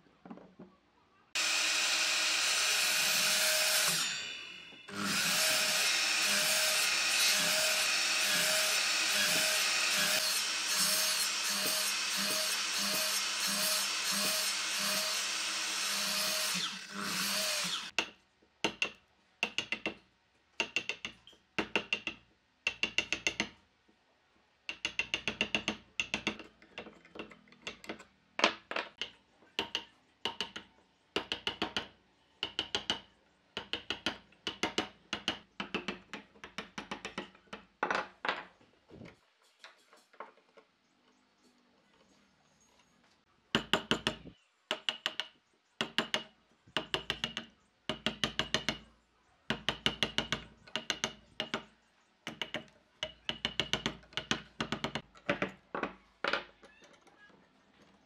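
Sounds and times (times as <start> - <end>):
electric miter saw running: 1.4 - 17.9
mallet tapping chisel: 18.0 - 20.0, 20.6 - 23.6, 24.7 - 28.0, 29.0 - 37.6, 43.6 - 48.8, 49.5 - 51.7, 52.3 - 55.4.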